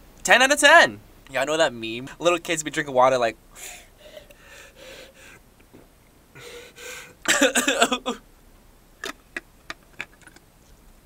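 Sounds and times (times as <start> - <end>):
man gasping loudly: 3.5 - 5.4, 6.4 - 7.3
man gulping water: 5.6 - 6.1, 9.0 - 10.4.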